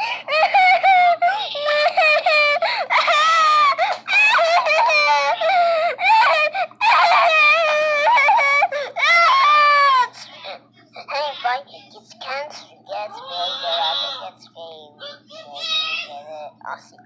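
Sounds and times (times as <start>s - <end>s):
high-pitched whining voice: 9.0s - 17.0s.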